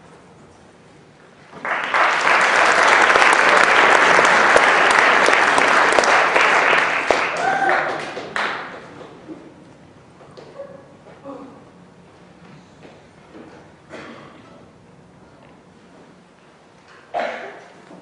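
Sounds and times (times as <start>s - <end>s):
audience applauding: 1.6s - 8.9s.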